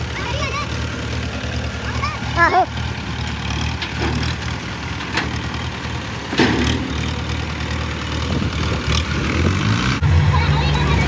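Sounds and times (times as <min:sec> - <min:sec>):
diesel tractor engine running: 0:00.0 - 0:11.0
sharp knocks from hitch: 0:03.6 - 0:05.7, 0:06.3 - 0:07.5.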